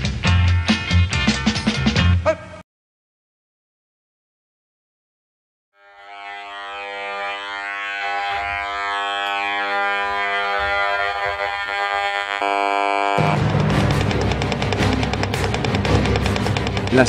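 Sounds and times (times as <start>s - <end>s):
electronic buzzing drone: 5.8s - 16.9s.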